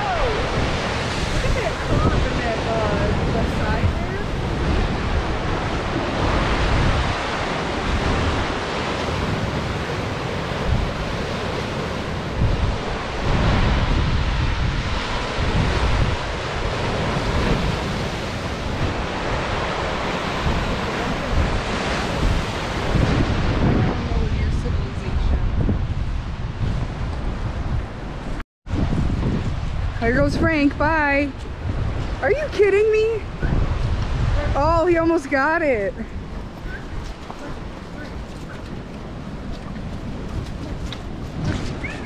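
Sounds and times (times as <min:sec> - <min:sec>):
surf breaking: 0:00.0 - 0:25.3
wind buffeting microphone: 0:00.0 - 0:42.0.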